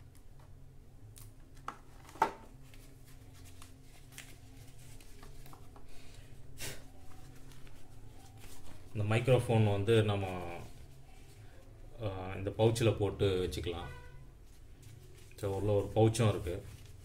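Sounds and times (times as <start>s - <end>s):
steady low hum: 0.0s - 17.0s
plastic packaging rustling: 1.8s - 6.1s.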